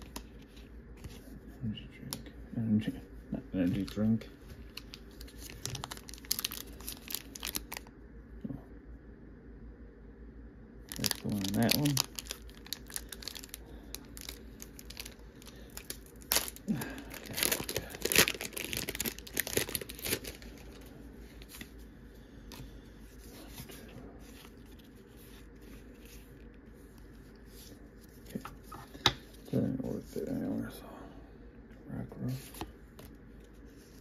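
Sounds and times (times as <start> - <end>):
foil wrapper tearing and crinkling: 4.8 - 7.9, 10.9 - 20.8.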